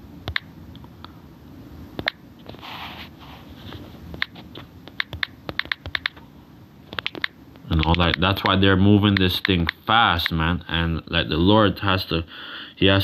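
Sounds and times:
touchscreen typing taps: 4.2s - 6.2s.

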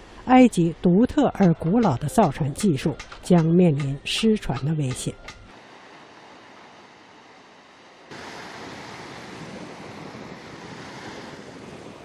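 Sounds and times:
surf breaking on beach: 5.6s - 12.0s
wind on microphone: 8.1s - 12.0s.

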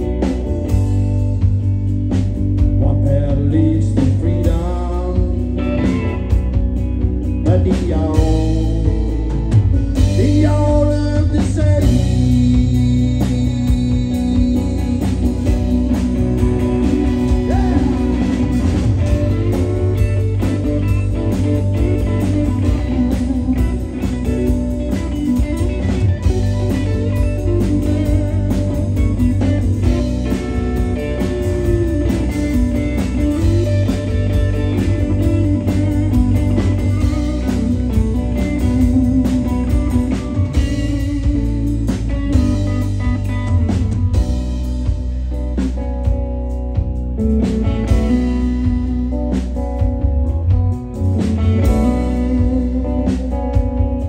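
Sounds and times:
bass: 0.0s - 54.0s
drum kit: 0.0s - 54.0s
electric guitars: 0.0s - 54.0s.

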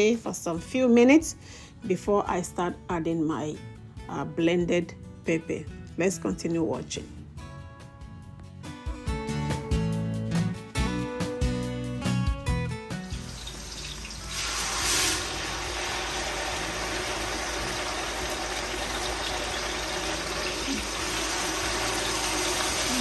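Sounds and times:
guitar music: 1.8s - 14.6s, 15.2s - 23.0s
puree sizzling in hot oil: 13.0s - 23.0s.

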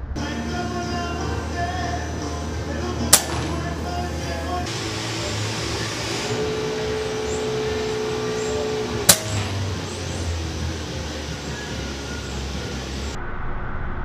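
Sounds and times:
steady background noise: 0.0s - 13.2s
steady droning tone: 0.0s - 13.2s
air rifle shot: 3.1s - 4.0s, 9.0s - 10.0s.

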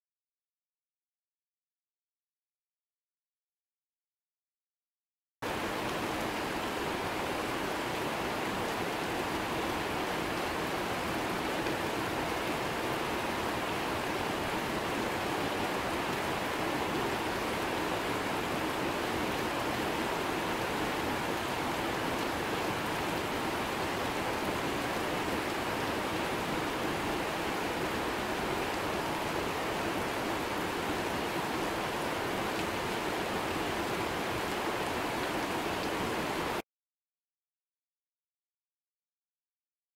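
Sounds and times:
heavy rain on leaves: 5.4s - 36.6s.

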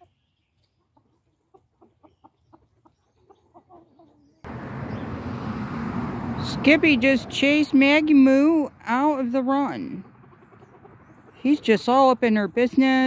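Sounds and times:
chicken clucking: 0.0s - 5.0s, 9.8s - 11.6s.

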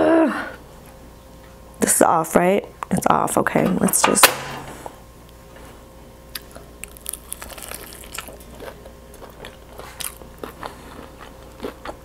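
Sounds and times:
crunching fried chicken: 6.3s - 12.0s.

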